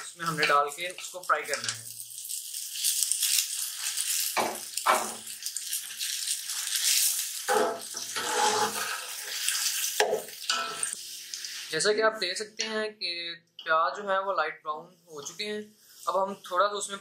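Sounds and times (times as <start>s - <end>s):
onions sizzling in oil: 0.0s - 11.8s
spoon scraping and knocking pot: 7.5s - 9.0s.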